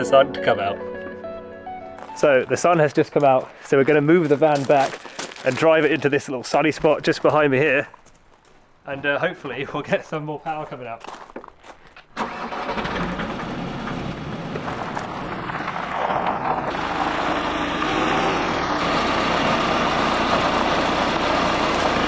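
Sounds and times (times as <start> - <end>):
van engine starting and running: 12.1 - 22.0.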